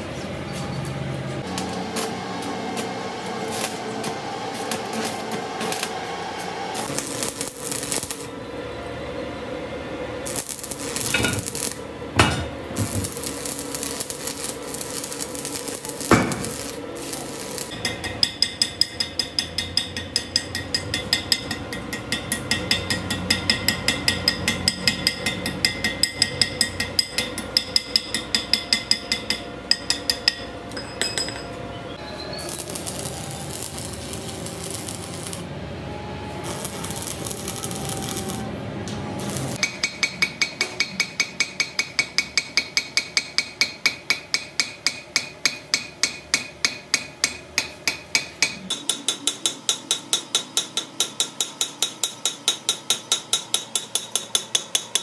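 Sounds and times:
hammer striking steel punch: 16.0 - 16.7, 39.6 - 55.0.

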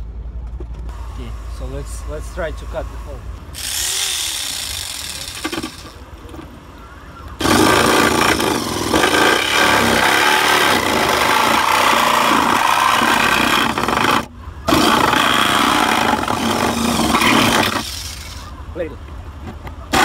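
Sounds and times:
power tool cutting sheet metal: 3.6 - 6.0, 7.4 - 18.4.

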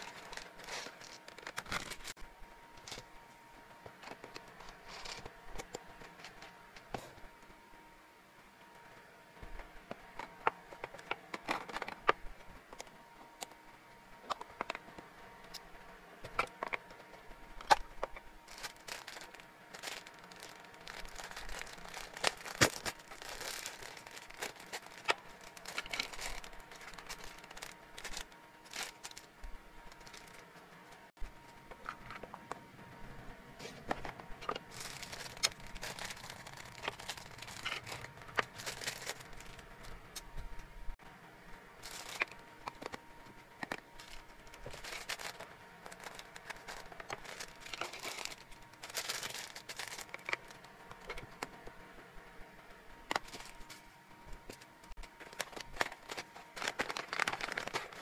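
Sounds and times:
plastic packets crinkling: 0.0 - 2.2, 10.2 - 12.2, 16.3 - 30.5, 34.4 - 40.0, 41.8 - 43.0, 43.6 - 51.3, 53.1 - 53.8, 54.5 - 58.0.

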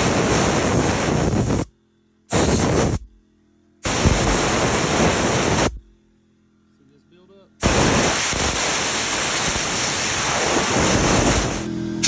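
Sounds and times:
air blower blasting: 0.0 - 1.7, 2.3 - 3.2, 3.8 - 6.0, 7.6 - 12.0.

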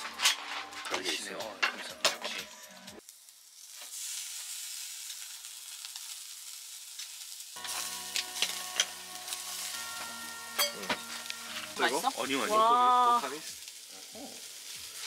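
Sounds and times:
background music: 0.0 - 3.0, 7.6 - 13.5
food sizzling in pan: 0.0 - 15.0.

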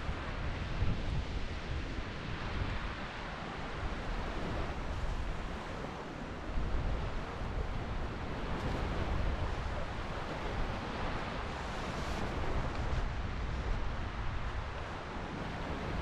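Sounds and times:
surf washing up beach: 0.0 - 16.0.

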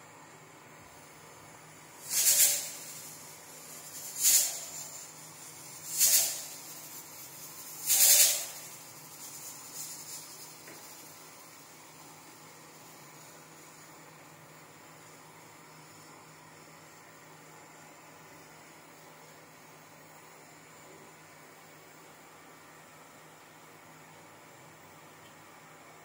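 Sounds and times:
short hissing puffs: 2.0 - 11.1.

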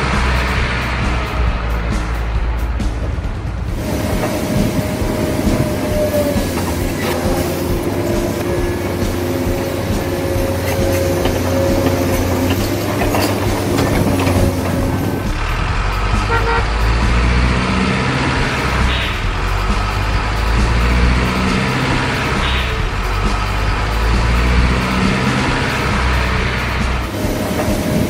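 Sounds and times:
low engine rumble: 0.0 - 28.0
truck horn held tones: 16.2 - 17.0, 18.6 - 19.4.

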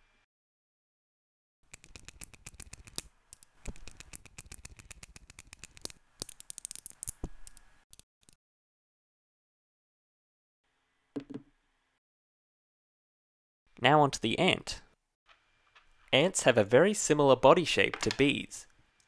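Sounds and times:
magnet spheres clicking together: 1.7 - 8.4.

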